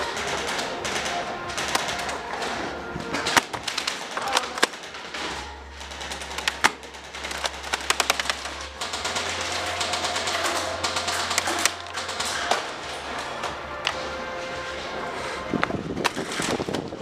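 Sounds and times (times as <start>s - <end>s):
airsoft guns firing: 0.0s - 13.2s.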